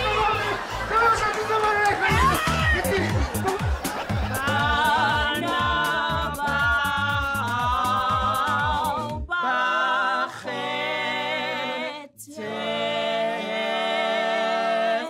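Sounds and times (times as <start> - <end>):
rhythmic beat: 1.9 - 9.3
choir singing in harmony: 3.4 - 15.0.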